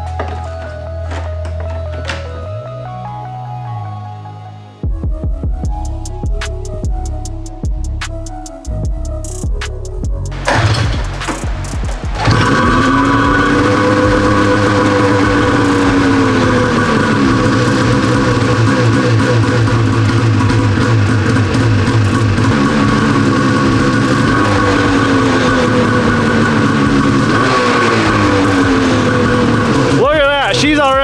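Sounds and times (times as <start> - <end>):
snowmobile engine revving: 12.0 - 31.0.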